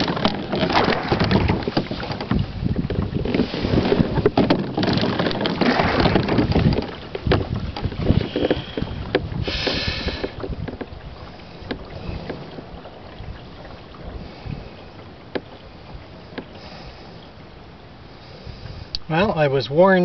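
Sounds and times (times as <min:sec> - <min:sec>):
oar gear knocks: 0:00.0 - 0:11.0, 0:15.3 - 0:15.6
oars splashing through water: 0:00.0 - 0:20.0.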